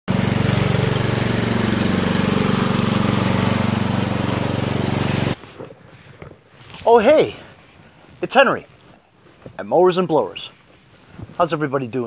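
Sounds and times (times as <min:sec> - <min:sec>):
lawn mower engine chugging: 0:00.1 - 0:07.5.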